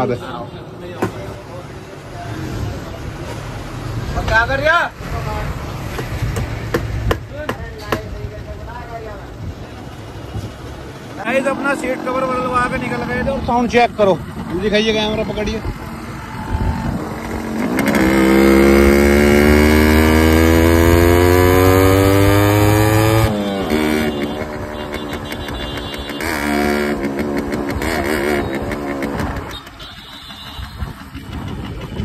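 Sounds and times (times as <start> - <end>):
motorcycle engine revving: 10.6 - 32.0.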